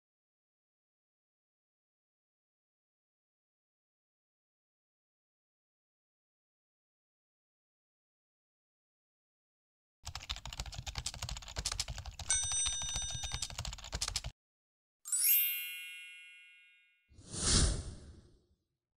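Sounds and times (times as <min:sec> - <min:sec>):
keyboard typing clicks: 0:10.1 - 0:14.3
bell ding: 0:12.3 - 0:13.5, 0:15.1 - 0:17.0
bright chime ringing: 0:15.1 - 0:17.1
short whoosh: 0:17.2 - 0:18.4.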